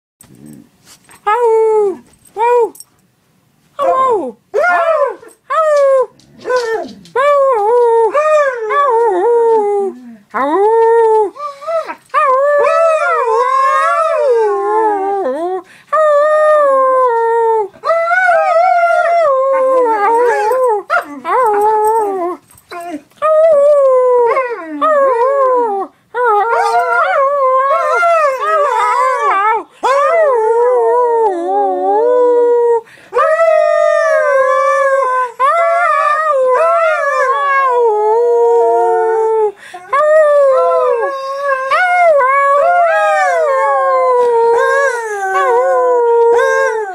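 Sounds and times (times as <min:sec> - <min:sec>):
dog howling: 0:16.6 - 0:32.4, 0:33.2 - 0:46.9.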